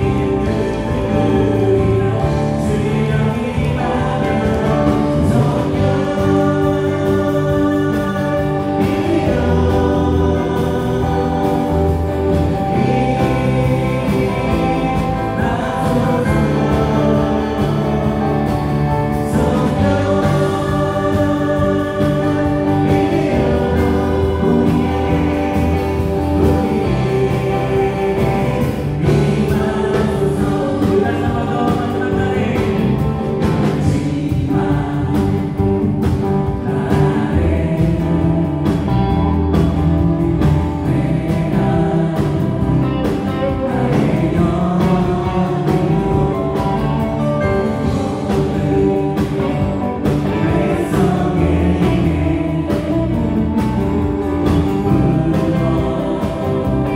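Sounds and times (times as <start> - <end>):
group singing a gospel song: 0.0 - 56.9
live band playing: 0.0 - 56.9.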